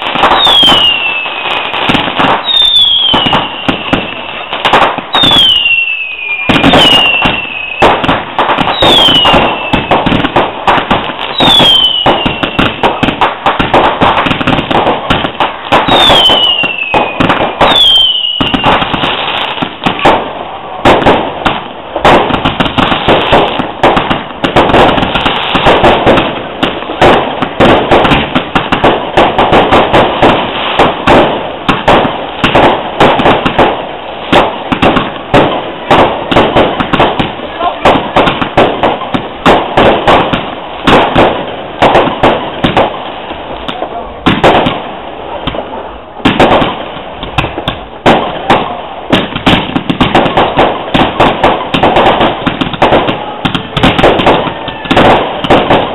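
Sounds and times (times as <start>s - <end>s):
fireworks whistles falling in pitch: 0.0s - 20.2s
fireworks bangs and crackling: 0.0s - 55.9s.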